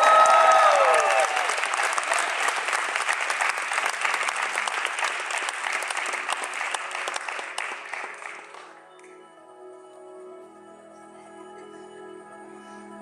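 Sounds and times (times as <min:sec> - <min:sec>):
audience applauding: 0:00.0 - 0:09.2
soft music with held tones: 0:08.7 - 0:13.0.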